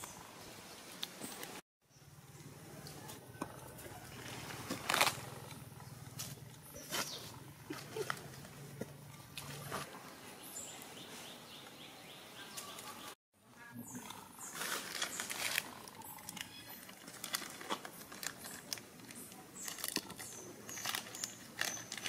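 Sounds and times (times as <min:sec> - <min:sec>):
plastic wrapper crinkling: 0:14.6 - 0:22.0.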